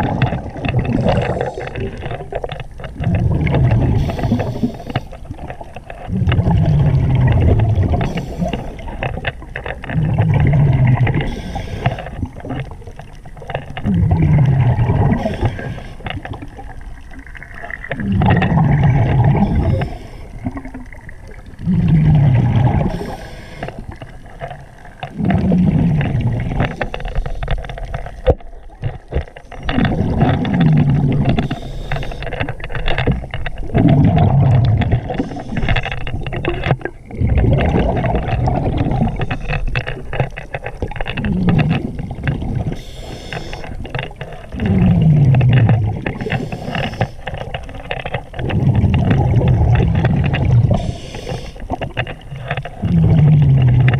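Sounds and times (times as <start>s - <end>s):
bubbling exhalations underwater: 0.0s - 26.9s, 27.9s - 31.7s, 32.4s - 53.9s
regulator inhalation hiss: 42.8s - 43.6s, 50.8s - 51.6s.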